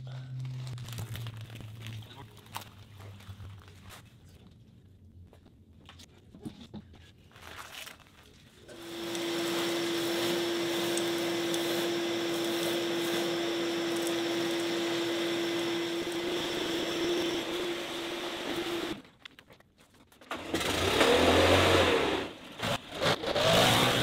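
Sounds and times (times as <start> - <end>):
shop vacuum humming: 8.7 - 19.0.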